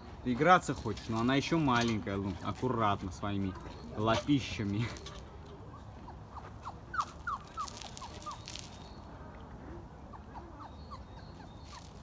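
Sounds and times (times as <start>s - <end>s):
dog whimpering: 9.8s - 12.0s.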